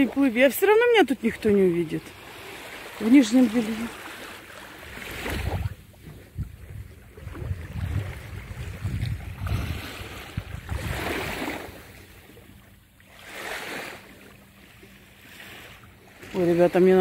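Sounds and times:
small waves lapping at shore: 0.0s - 17.0s
wind buffeting microphone: 5.1s - 11.5s.

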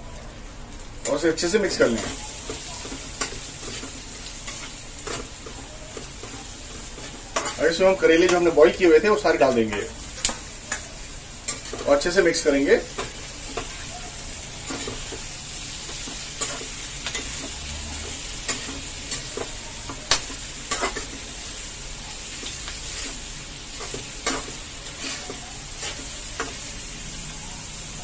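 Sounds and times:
low frying sizzle: 0.0s - 28.0s
spatula scraping a pan: 12.8s - 27.0s.

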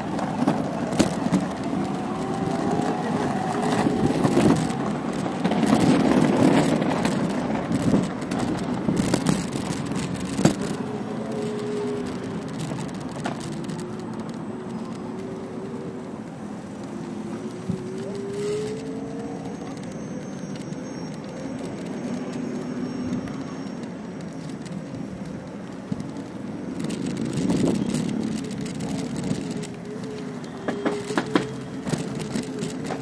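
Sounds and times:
tyre rumble over paving: 0.0s - 33.0s
wind noise: 0.0s - 33.0s.

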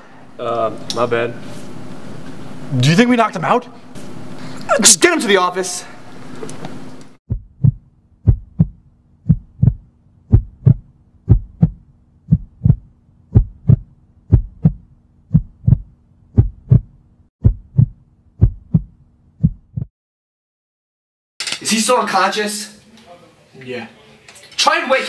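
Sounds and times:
heartbeat thumps: 7.3s - 19.9s.

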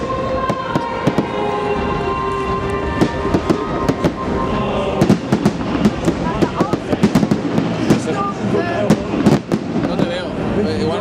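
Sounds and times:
music with long held notes: 0.0s - 6.4s
fireworks bursting: 0.0s - 11.0s.

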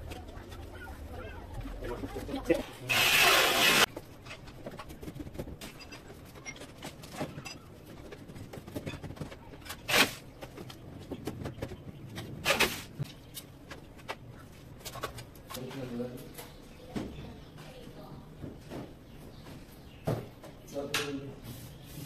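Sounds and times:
short bursts of noise: 2.9s - 3.9s.

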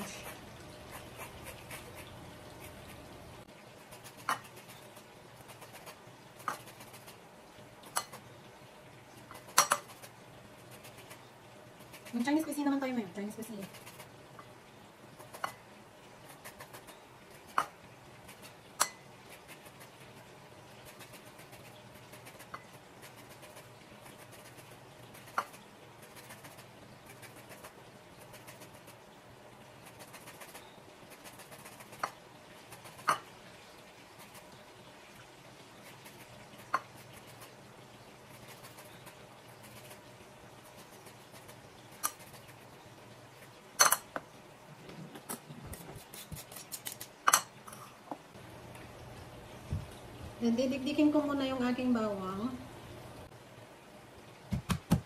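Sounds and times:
orange peel scratching on grater: 0.0s - 3.1s, 3.8s - 7.2s, 9.4s - 12.5s, 18.2s - 29.0s, 29.8s - 33.2s, 45.7s - 47.1s.

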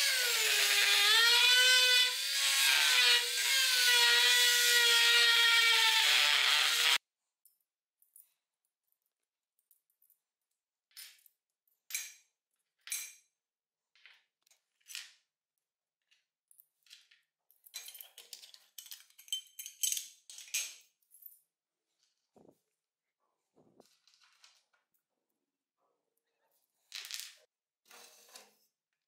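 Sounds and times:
small metal parts clinking: 16.5s - 21.4s.

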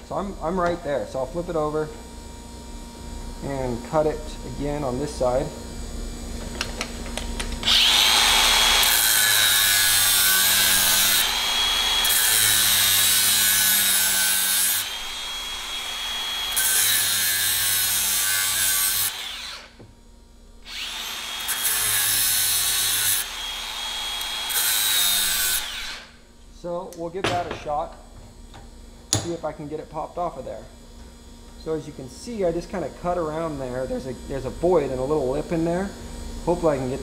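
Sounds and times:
angle grinder cutting steel: 7.6s - 19.7s, 20.7s - 26.1s.

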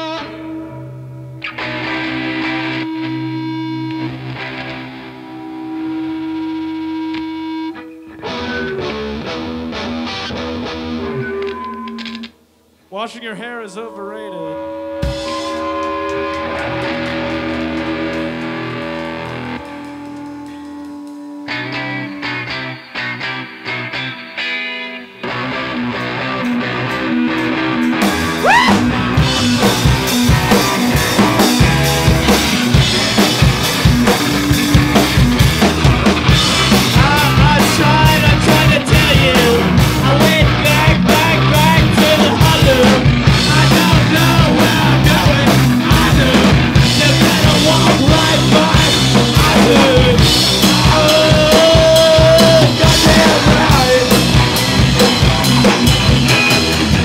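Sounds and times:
bass guitar: 0.0s - 12.3s, 13.8s - 57.0s
electric guitars: 0.0s - 12.9s, 13.8s - 57.0s
drum kit: 15.0s - 22.4s, 25.3s - 57.0s.

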